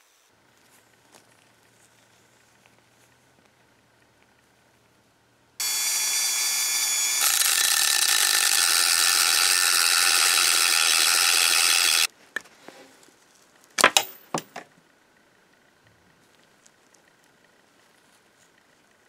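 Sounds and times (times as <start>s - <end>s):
cut-off wheel grinding metal: 5.6s - 12.1s
rotary tool whining: 5.6s - 12.1s
sharp clicks: 5.6s - 12.1s.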